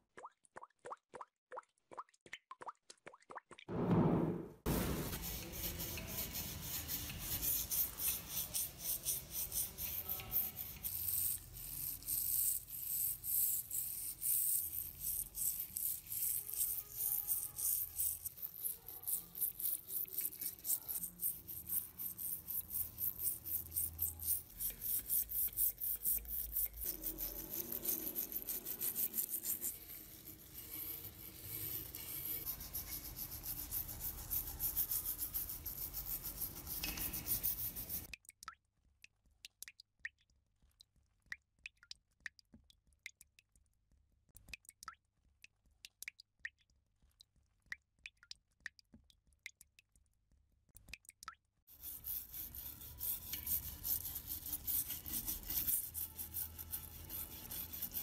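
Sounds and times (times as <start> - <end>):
brush scrubbing metal: 4.7 - 38.1, 51.7 - 58.0.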